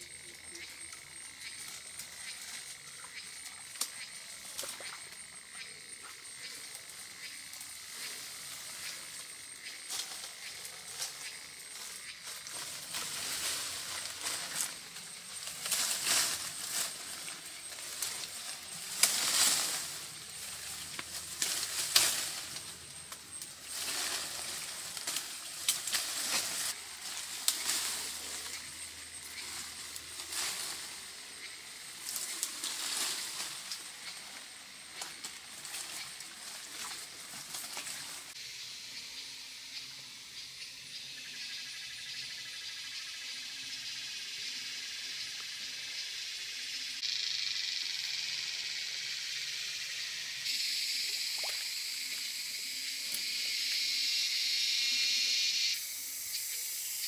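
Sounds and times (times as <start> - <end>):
leafy branches rustling: 0.0 - 38.4
steady high hiss: 0.0 - 57.0.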